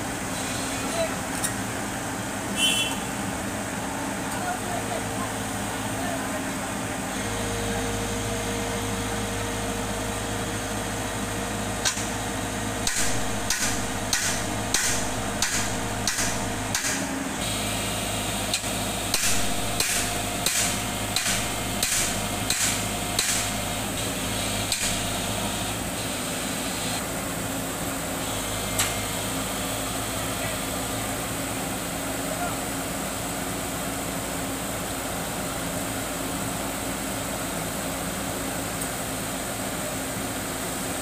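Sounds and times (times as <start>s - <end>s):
diesel engine idling: 0.0s - 40.6s
sharp hammer blows: 12.8s - 17.1s, 19.1s - 23.7s.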